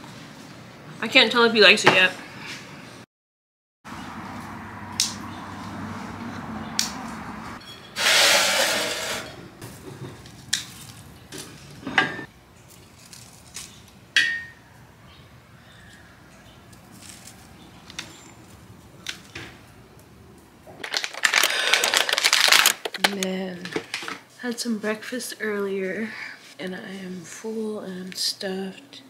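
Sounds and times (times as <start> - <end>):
spoon scraping a bowl: 7.6 - 9.4
loud rustling: 20.8 - 23.2.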